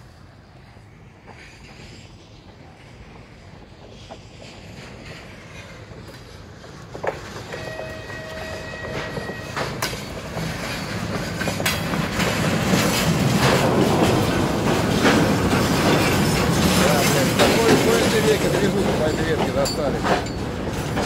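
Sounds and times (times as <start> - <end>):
train rumble: 0.0 - 21.0
wheels clanking over rail joints: 4.7 - 21.0.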